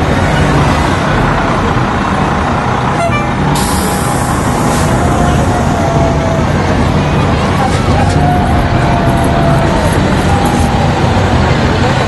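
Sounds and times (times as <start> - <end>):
fire engine diesel engine running: 0.0 - 12.0
sudden hiss: 3.6 - 5.0.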